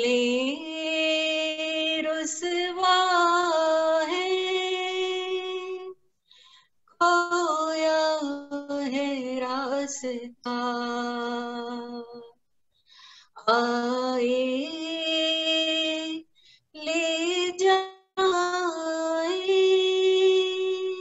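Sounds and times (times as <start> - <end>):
woman singing unaccompanied: 0.0 - 6.0, 7.0 - 12.4, 13.4 - 21.0.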